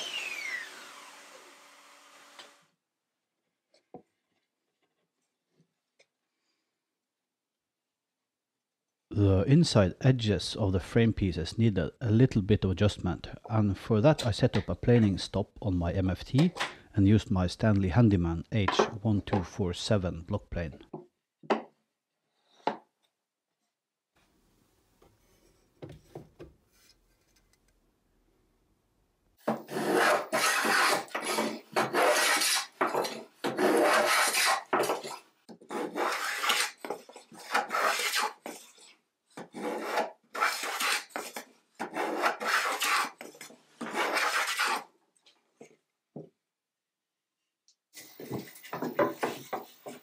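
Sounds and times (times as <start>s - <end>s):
hand plane shaving wood: 29.5s - 44.9s.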